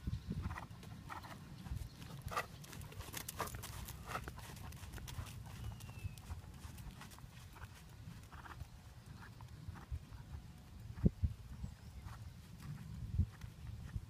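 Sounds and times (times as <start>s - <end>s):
horse hoofbeats on sand: 0.4s - 14.0s.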